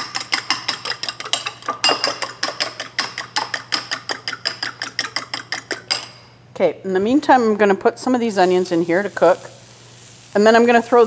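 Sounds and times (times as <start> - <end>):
fork beating eggs in bowl: 0.0 - 6.2.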